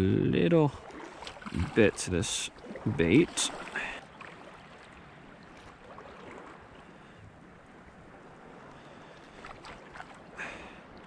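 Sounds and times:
shallow seawater washing: 0:00.6 - 0:11.0
wind on microphone: 0:01.4 - 0:02.2.

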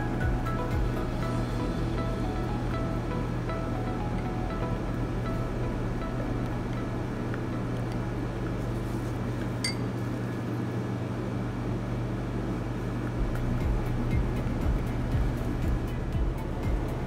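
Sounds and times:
steady low hum: 0:00.0 - 0:17.0
stick clinking on glass cup: 0:09.6 - 0:09.9.

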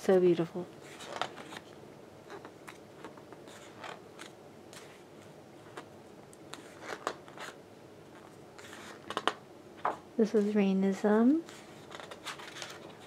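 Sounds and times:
book pages rustling: 0:00.8 - 0:10.5, 0:11.4 - 0:13.0.

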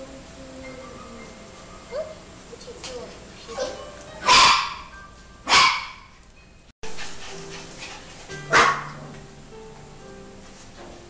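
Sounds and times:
puppy barking: 0:03.6 - 0:04.9, 0:05.5 - 0:06.1, 0:08.5 - 0:09.0
background music: 0:06.9 - 0:11.0.

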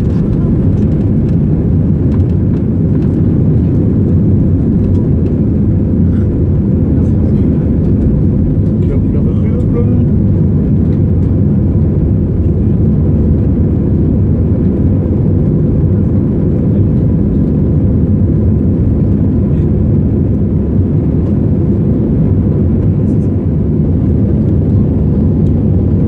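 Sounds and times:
airplane engines in cabin: 0:00.0 - 0:26.0.

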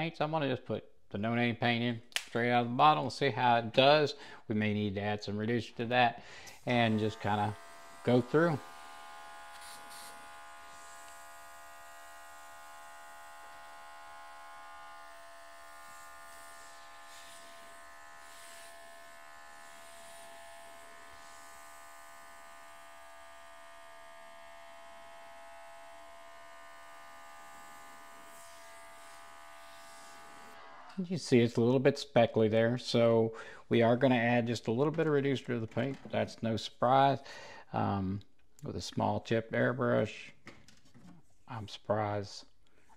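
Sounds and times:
compressor motor buzzing: 0:06.3 - 0:31.0
airbrush air hiss: 0:09.5 - 0:11.0.

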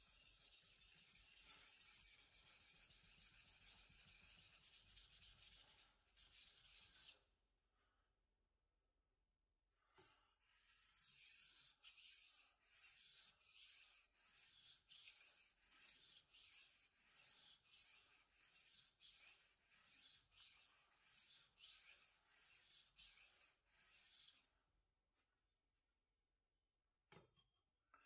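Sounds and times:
knife scraping on whetstone: 0:10.5 - 0:24.4.

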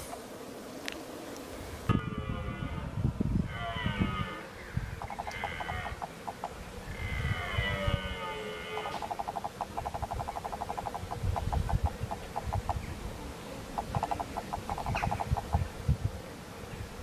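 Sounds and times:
rapid clucking calls: 0:05.0 - 0:06.7, 0:08.8 - 0:12.9, 0:13.7 - 0:15.7.

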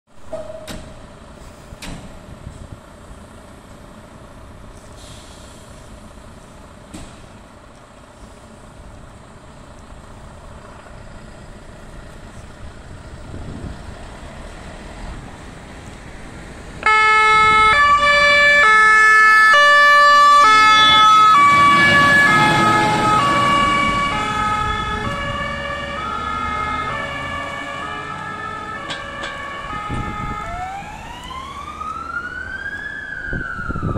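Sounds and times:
diesel engine rumble: 0:00.2 - 0:33.9
two-tone siren: 0:16.8 - 0:33.9.

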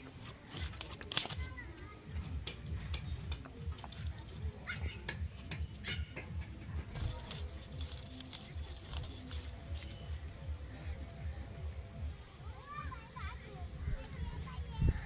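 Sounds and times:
knife scraping fish scales: 0:06.9 - 0:10.1.

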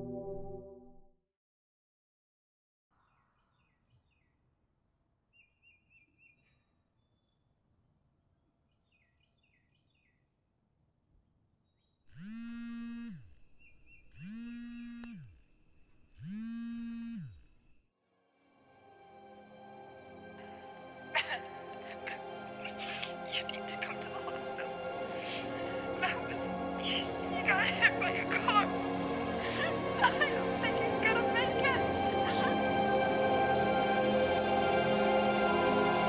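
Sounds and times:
faint birdsong: 0:03.0 - 0:10.4, 0:11.1 - 0:16.3
mobile phone vibrating: 0:12.1 - 0:17.7.

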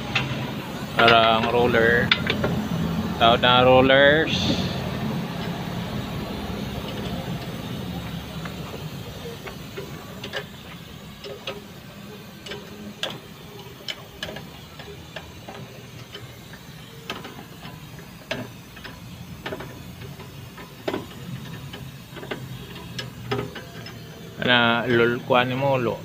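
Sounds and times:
metal brake parts clicking: 0:00.1 - 0:02.6, 0:06.8 - 0:24.4.

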